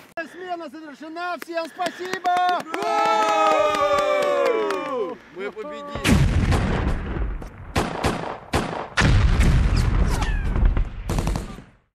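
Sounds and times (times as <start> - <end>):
rumble of explosions: 5.9 - 11.9
gunfire shots and volleys: 6.0 - 11.8.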